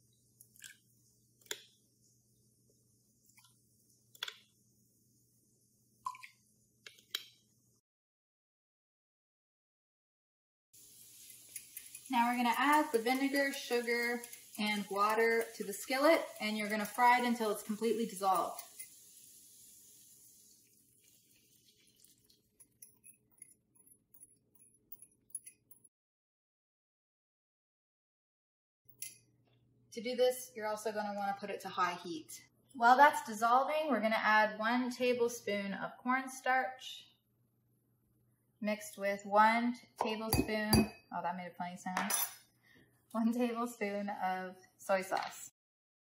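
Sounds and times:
faint hiss: 0:10.8 - 0:15.6, 0:16.9 - 0:21.8.

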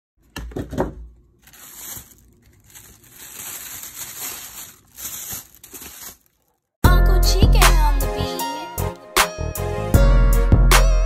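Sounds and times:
rustling and crinkling: 0:00.6 - 0:06.7.

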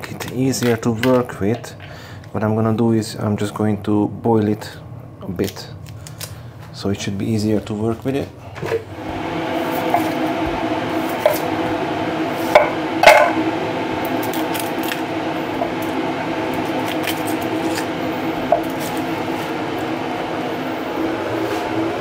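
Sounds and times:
onion peeling crackles: 0:05.3 - 0:06.8, 0:14.0 - 0:19.6
kitchen appliance humming: 0:08.4 - 0:22.0.

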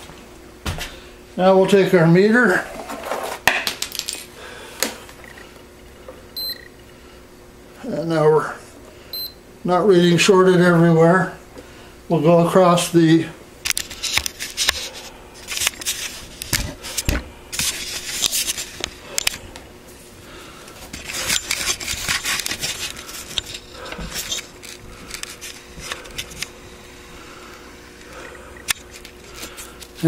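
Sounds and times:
handling noise rubbing and scraping: 0:02.5 - 0:03.5, 0:13.8 - 0:19.0, 0:19.9 - 0:26.9.

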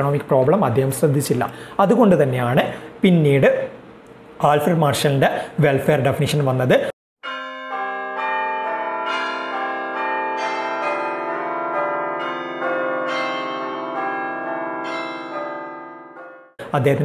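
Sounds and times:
bell-like chime jingle: 0:07.2 - 0:16.6.

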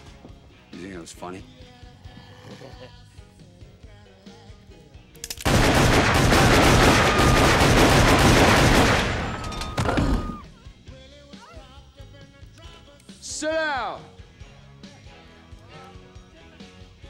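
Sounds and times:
pistols firing rapidly: 0:05.4 - 0:10.4.

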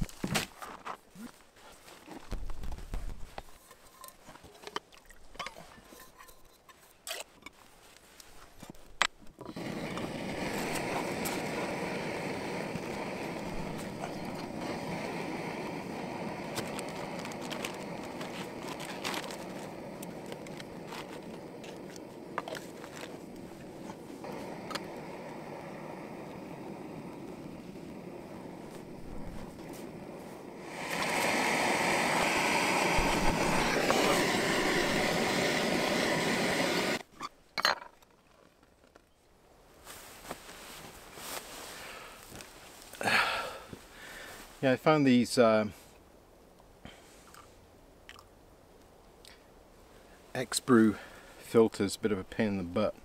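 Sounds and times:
gas stove burner hissing: 0:09.5 - 0:37.0
sharp igniter click: 0:30.7 - 0:37.0.

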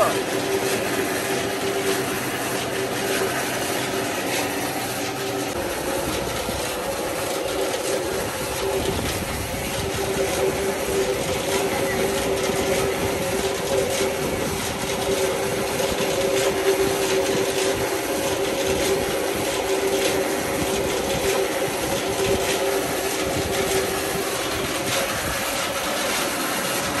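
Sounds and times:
water rushing and churning: 0:00.0 - 0:27.0.

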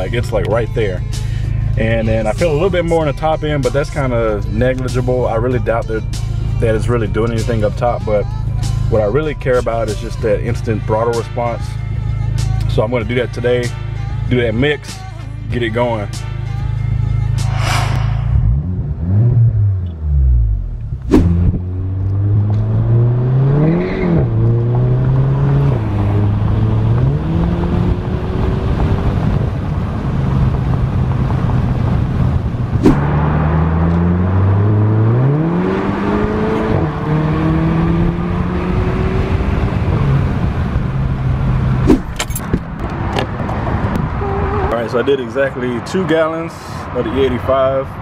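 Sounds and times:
car engine accelerating: 0:17.2 - 0:44.9.

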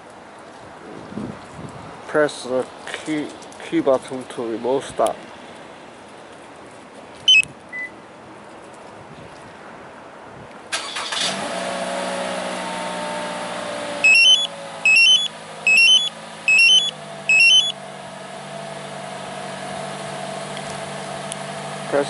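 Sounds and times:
electronic chirps rising in pitch: 0:07.3 - 0:07.5, 0:14.0 - 0:17.8
car engine starting and idling: 0:10.7 - 0:22.0.

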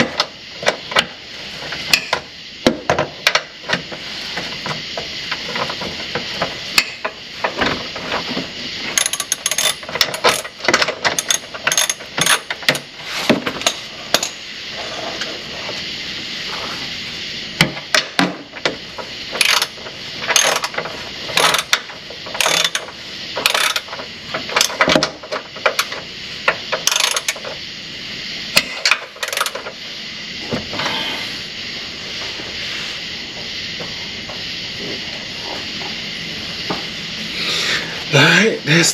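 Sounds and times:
ratchet wrench clicking: 0:09.0 - 0:12.9, 0:19.4 - 0:19.7, 0:20.3 - 0:24.9, 0:26.8 - 0:27.4.

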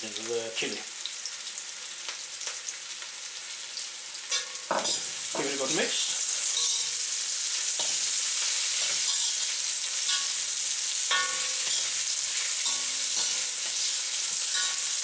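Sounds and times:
food sizzling in a wok: 0:00.0 - 0:15.0
spatula scraping and knocking pan: 0:06.4 - 0:07.0, 0:07.8 - 0:10.4, 0:11.1 - 0:15.0.

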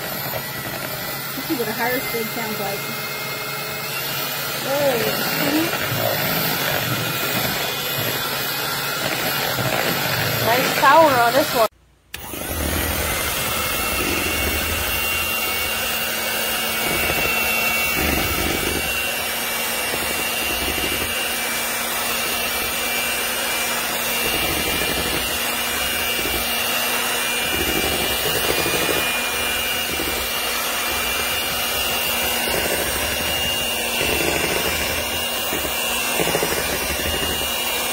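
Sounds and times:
beaters churning batter in bowl: 0:00.0 - 0:37.9
electric hand mixer whining: 0:00.0 - 0:37.9.

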